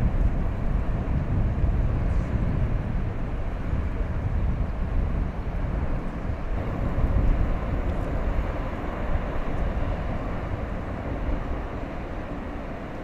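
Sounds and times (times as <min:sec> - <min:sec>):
propeller churning water: 0:00.0 - 0:13.0
ship diesel engine rumble: 0:02.6 - 0:13.0.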